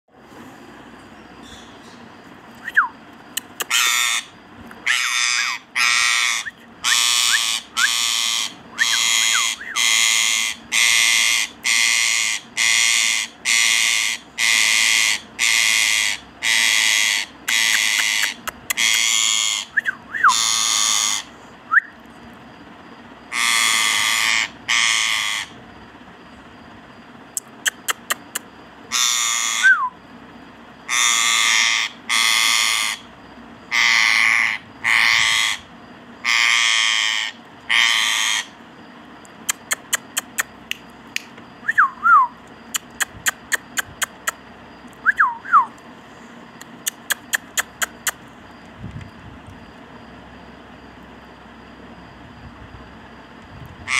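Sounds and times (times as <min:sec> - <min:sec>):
sharp clicks: 0:03.3 - 0:03.7, 0:39.2 - 0:41.4, 0:42.4 - 0:45.0, 0:46.6 - 0:48.3
parakeet screeching: 0:03.7 - 0:19.7, 0:20.3 - 0:21.3, 0:23.3 - 0:25.6, 0:28.9 - 0:29.7, 0:30.9 - 0:33.1, 0:33.7 - 0:38.6.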